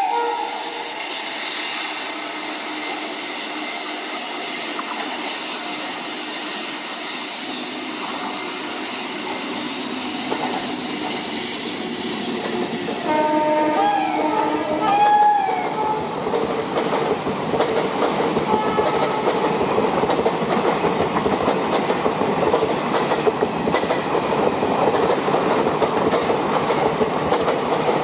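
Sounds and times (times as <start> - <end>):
two-tone train horn: 0.0 - 0.9, 13.0 - 16.1, 18.5 - 19.4
electric locomotive high-pitched whine: 0.0 - 21.1
train running noise: 0.0 - 28.0.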